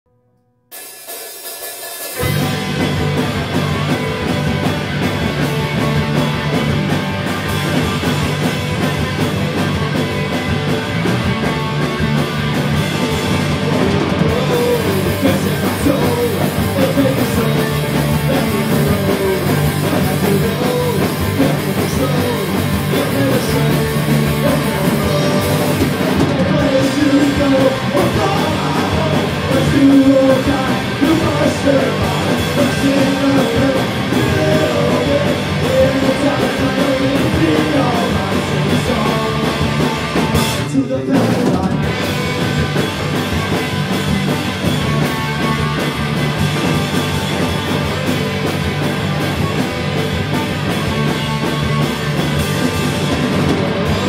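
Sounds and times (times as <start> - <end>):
drum kit: 0.7 - 54.0
rock band playing: 0.7 - 54.0.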